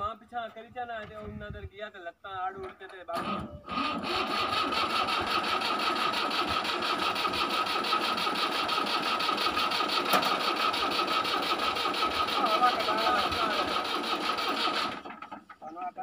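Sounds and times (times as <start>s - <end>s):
tractor diesel engine running: 3.2s - 15.8s.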